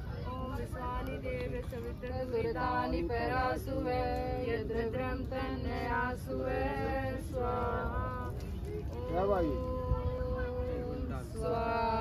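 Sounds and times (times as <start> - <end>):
group chanting in unison: 2.4 - 8.5.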